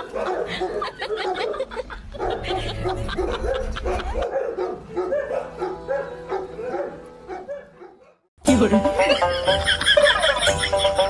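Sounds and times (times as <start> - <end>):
dogs whining and yipping: 0.0 - 8.2.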